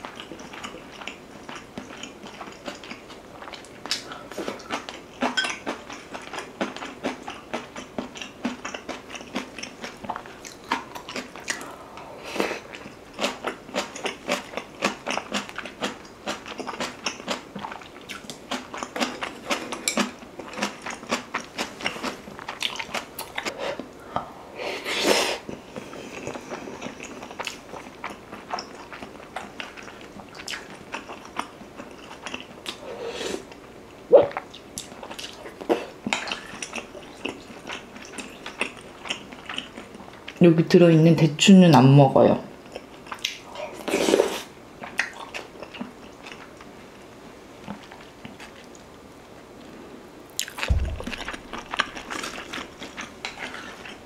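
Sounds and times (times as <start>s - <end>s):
person chewing food: 0.0s - 24.3s, 25.4s - 33.7s, 34.3s - 40.4s, 42.6s - 46.8s, 47.6s - 48.9s, 49.6s - 54.0s
loud knock: 50.7s - 52.5s.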